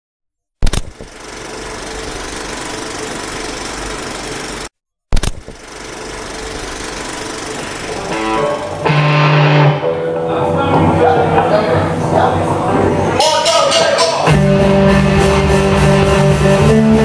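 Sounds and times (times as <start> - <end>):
sound system hum: 5.4 - 17.0
electric guitar notes: 7.9 - 17.0.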